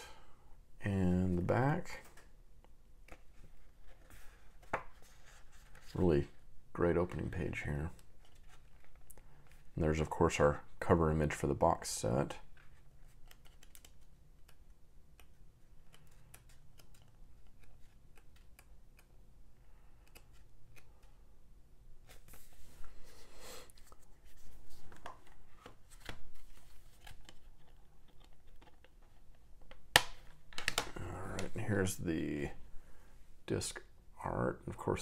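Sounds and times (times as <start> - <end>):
paper pages rustling: 22.0 - 31.9
plastic disc case clicks: 29.7 - 31.5.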